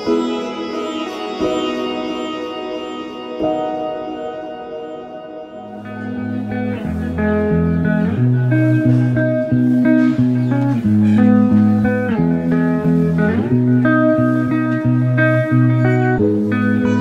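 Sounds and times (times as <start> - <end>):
plucked guitar melody: 0.0 - 17.0.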